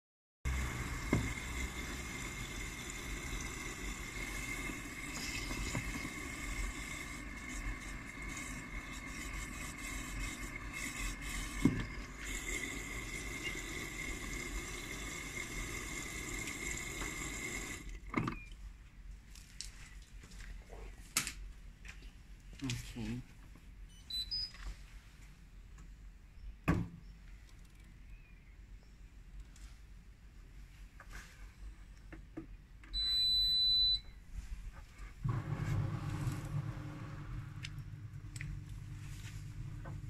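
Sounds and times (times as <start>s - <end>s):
washing machine humming: 0.5s - 18.5s, 35.2s - 40.0s.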